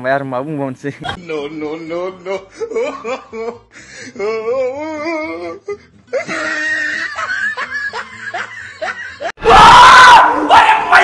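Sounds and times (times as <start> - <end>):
person laughing: 1.0 - 9.4
several voices yelling: 9.4 - 11.0.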